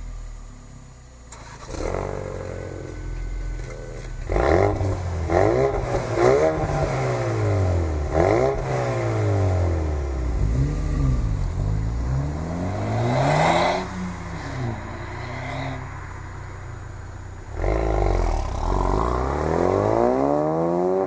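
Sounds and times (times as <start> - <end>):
car accelerating away: 1.3 - 21.0
car engines revving: 1.3 - 21.0.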